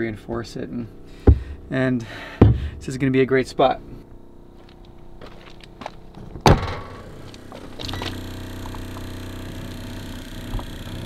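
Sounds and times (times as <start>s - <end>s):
water pump humming: 0.9s - 3.0s, 6.7s - 11.0s
metal compartment door clunk: 6.3s - 8.8s.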